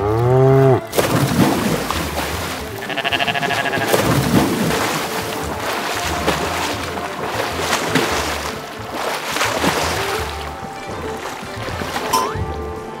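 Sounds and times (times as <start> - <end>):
cartoon cow moo: 0.0 - 0.9, 2.8 - 4.0
water splashing: 0.0 - 13.0
goat bleating: 2.7 - 4.1.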